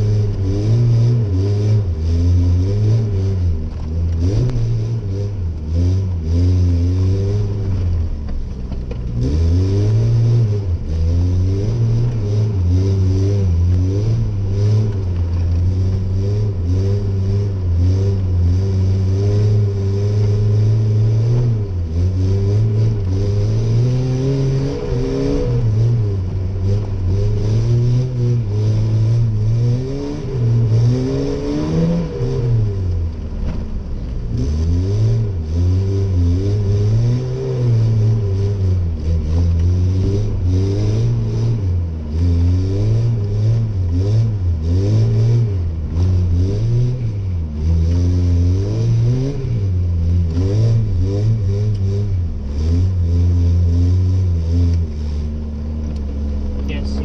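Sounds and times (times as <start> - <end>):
pickup engine revving: 0.0 - 57.0.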